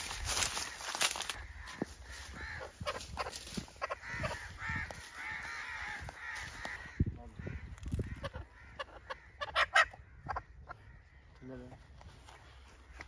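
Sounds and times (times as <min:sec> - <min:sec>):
footsteps on dirt path: 0:00.0 - 0:08.2, 0:10.8 - 0:13.0.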